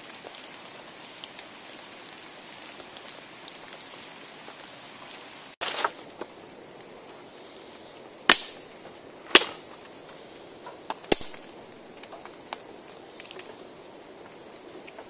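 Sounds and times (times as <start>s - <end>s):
digging tool chopping soil: 9.3s - 9.6s.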